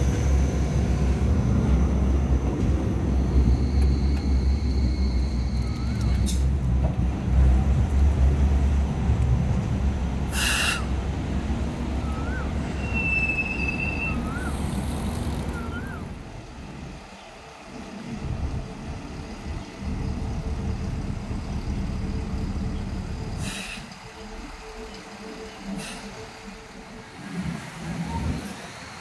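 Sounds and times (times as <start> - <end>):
light rail vehicle rumbling: 0.0 - 29.0
road traffic with buses: 0.0 - 29.0
air hiss: 10.3 - 10.9
brief high squeal: 12.2 - 14.6.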